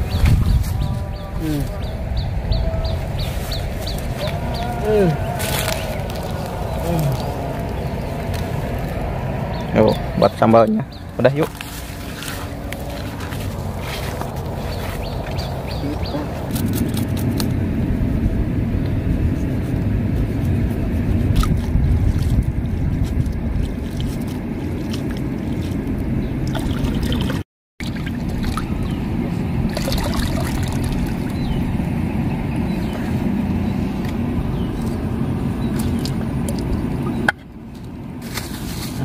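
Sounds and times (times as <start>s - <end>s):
steady low rumble: 0.0s - 39.0s
water splashing and trickling: 21.1s - 32.0s, 34.8s - 37.3s.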